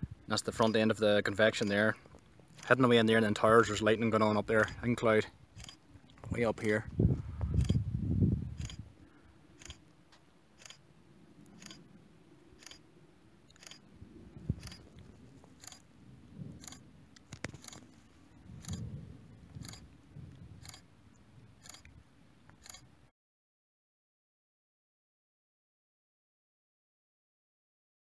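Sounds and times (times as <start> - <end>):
faint low rumble: 0.0 - 23.1
camera shutter clicks: 8.6 - 8.8, 11.6 - 11.8, 13.5 - 13.8, 14.6 - 14.9, 22.6 - 22.9.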